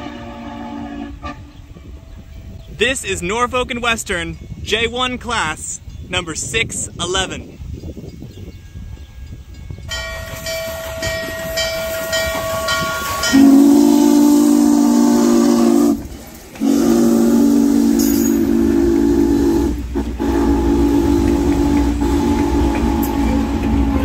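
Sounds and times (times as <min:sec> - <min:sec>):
train rumble: 0:00.0 - 0:24.0
locomotive bell ringing: 0:01.8 - 0:14.1, 0:17.9 - 0:18.7
chime whistle blasts: 0:18.0 - 0:18.5.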